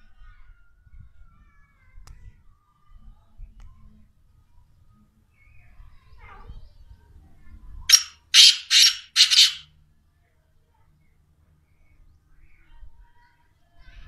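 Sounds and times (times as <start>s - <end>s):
francolin calling: 7.9s - 9.6s.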